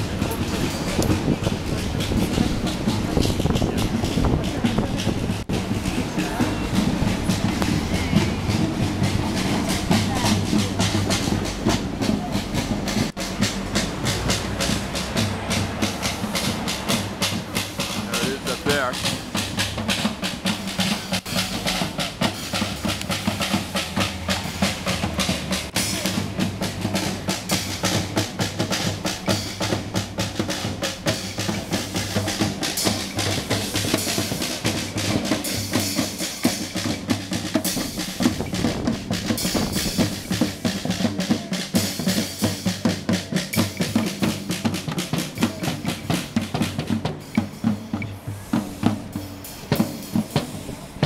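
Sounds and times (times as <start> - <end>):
drum circle beating drums: 0.0 - 51.0.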